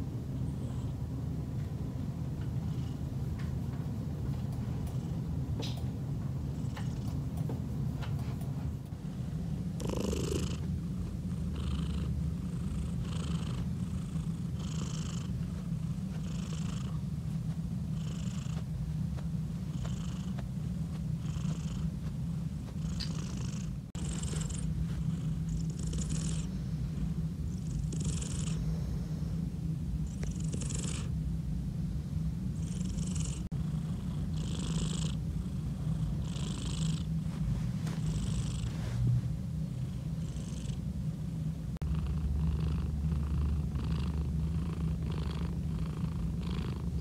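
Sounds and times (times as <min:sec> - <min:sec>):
cat purring: 0:06.5 - 0:07.3, 0:09.6 - 0:29.4, 0:30.0 - 0:31.2, 0:32.6 - 0:40.9, 0:41.8 - 0:47.0
soft breathing: 0:09.8 - 0:29.5, 0:35.4 - 0:40.6.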